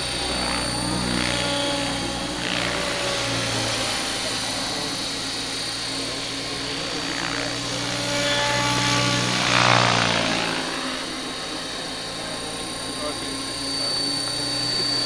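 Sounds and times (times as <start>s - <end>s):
model helicopter motor whine: 0.0s - 15.0s.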